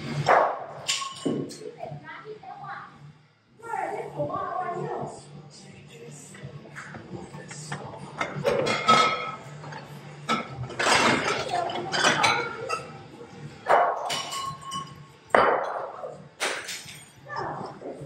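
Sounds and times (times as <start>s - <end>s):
shards clinking: 0.8s - 1.5s, 14.0s - 15.0s, 16.4s - 17.2s
plates and glass smashing: 8.4s - 9.4s, 10.3s - 12.9s, 14.0s - 15.5s.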